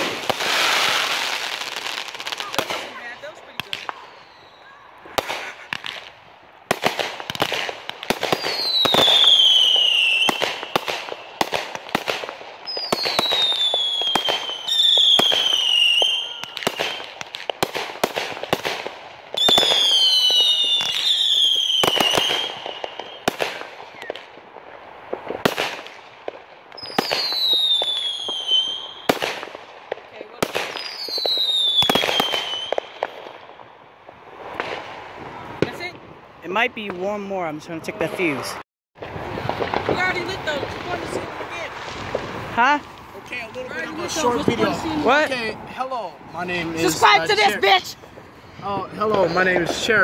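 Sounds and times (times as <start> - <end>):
descending firework whistles: 0.0 - 24.3, 26.7 - 29.6, 30.4 - 36.0
fireworks bangs and crackles: 0.0 - 50.0.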